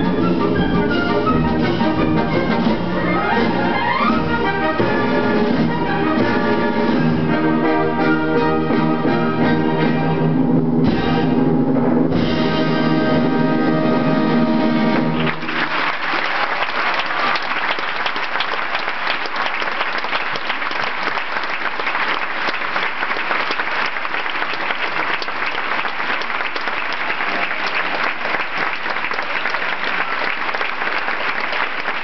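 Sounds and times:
audience applauding: 14.8s - 32.0s.

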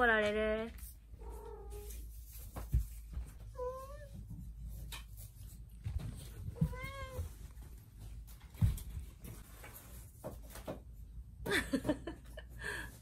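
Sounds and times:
cat meowing: 6.5s - 7.4s.

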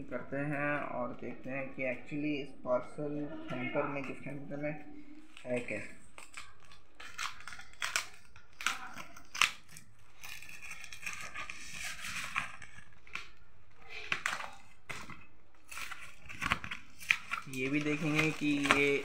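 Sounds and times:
tape and plastic tearing: 5.4s - 19.0s
scissors cutting plastic tape: 5.5s - 19.0s.

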